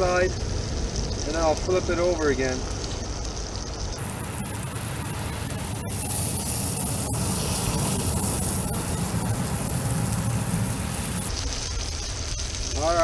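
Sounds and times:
fish sizzling in butter: 0.0 - 13.0
low rumble: 2.6 - 12.8.

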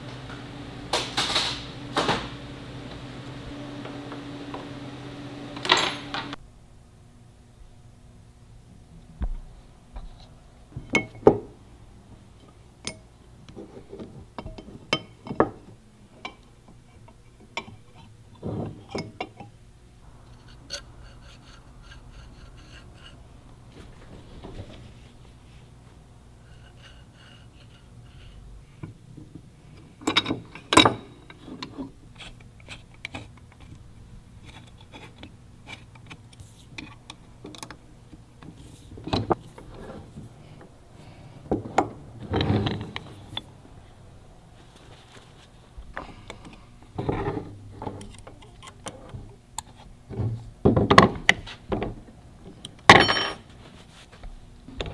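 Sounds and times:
low steady hum: 0.0 - 54.9
metal parts clinking and tapping: 30.0 - 31.8.

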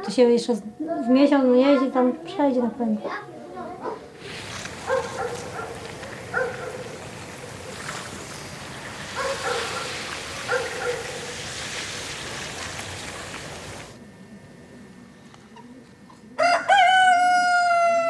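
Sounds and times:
dog barking: 3.8 - 4.1, 4.8 - 7.0, 9.1 - 11.3
steady rushing hiss: 4.0 - 16.4.

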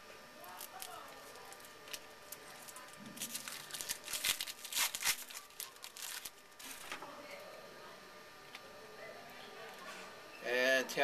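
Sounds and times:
wrapper tearing and crinkling: 0.4 - 7.0.

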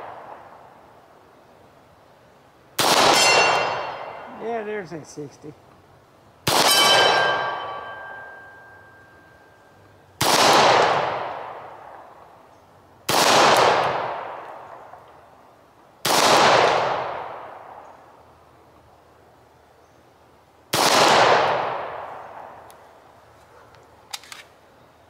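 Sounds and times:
pistol shots: 2.8 - 4.2, 6.4 - 8.3, 10.2 - 12.0, 13.1 - 14.7, 16.0 - 17.5, 20.7 - 22.5
steel target ringing: 3.1 - 4.4, 6.5 - 9.6.

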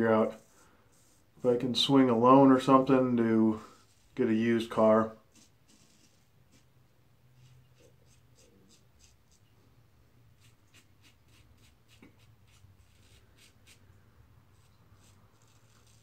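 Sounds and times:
razor scraping stubble: 3.7 - 6.7, 7.4 - 9.5, 10.4 - 13.8, 14.5 - 16.0.

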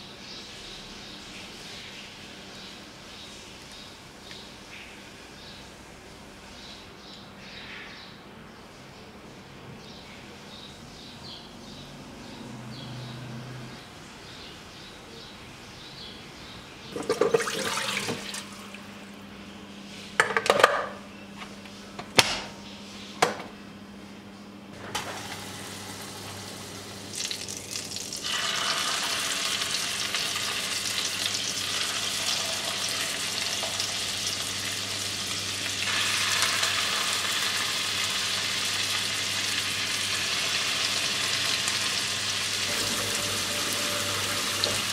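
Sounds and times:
food sizzling in oil: 27.1 - 44.9.

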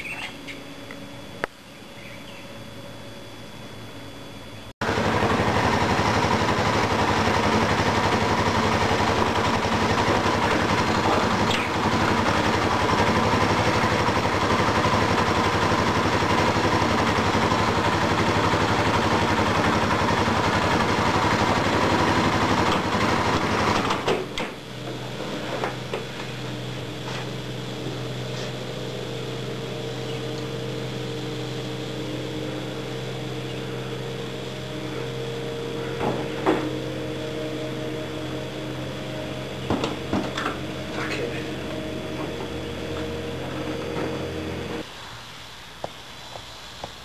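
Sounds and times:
motorcycle engine idling: 4.8 - 44.8.

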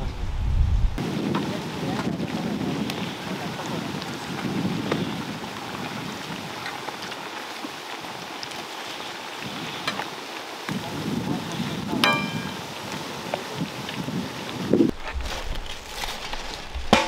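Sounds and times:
oil popping and crackling: 1.3 - 17.0
hot oil sizzling: 3.8 - 14.7.

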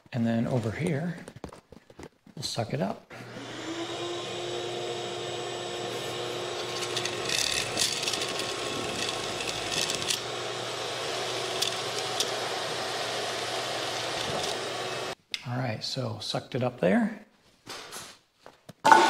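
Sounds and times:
vacuum cleaner running: 3.1 - 15.2
string spool clicking and rattling: 6.6 - 10.3, 11.5 - 12.4.

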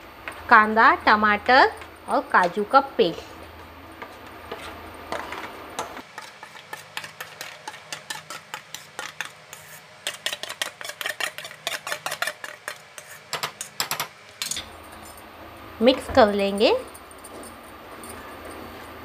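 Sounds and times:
metal spoon scraping steel bowl: 6.1 - 14.0.

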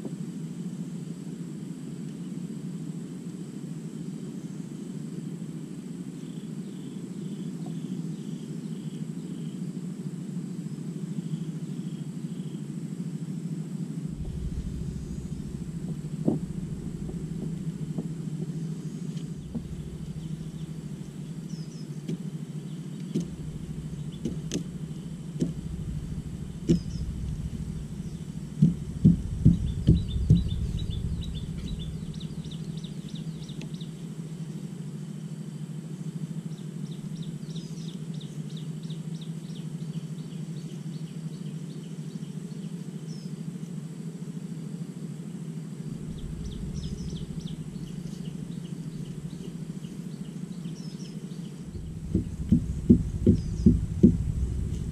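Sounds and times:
small birds chirping: 6.2 - 9.7, 10.7 - 12.8, 14.1 - 35.2, 36.0 - 43.8, 45.8 - 54.9
low rumble: 13.9 - 34.9, 45.8 - 54.9
sharp knocks: 23.1 - 32.6, 51.7 - 54.9.

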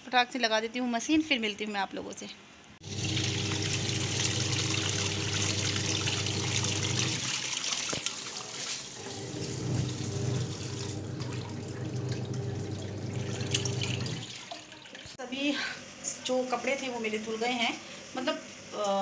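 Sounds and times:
washing machine motor humming: 2.8 - 14.8
water churning: 2.8 - 15.2.

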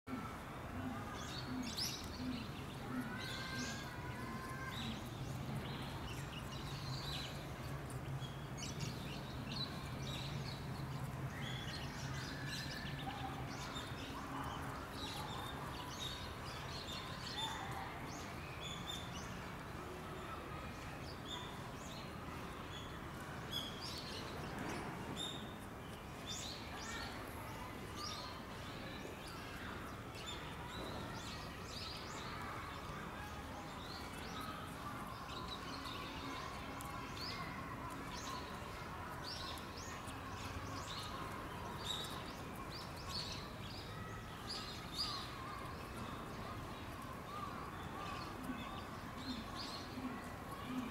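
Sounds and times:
small birds chirping: 0.1 - 50.9.

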